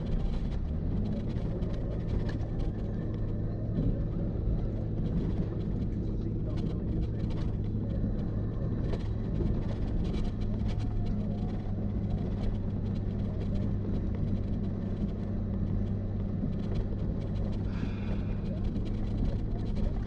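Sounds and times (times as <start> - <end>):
truck engine and tyre rumble: 0.0 - 20.0.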